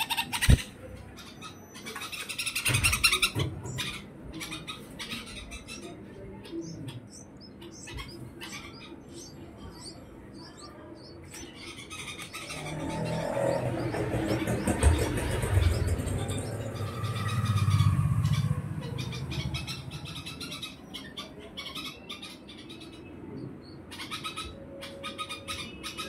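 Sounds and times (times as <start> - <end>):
nestlings chirping: 0.0 - 26.0
low rumble: 9.6 - 20.9.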